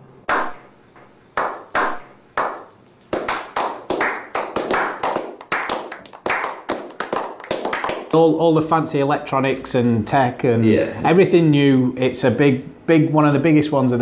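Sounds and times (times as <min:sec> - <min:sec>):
men clapping: 0:00.3 - 0:00.6, 0:01.4 - 0:08.4.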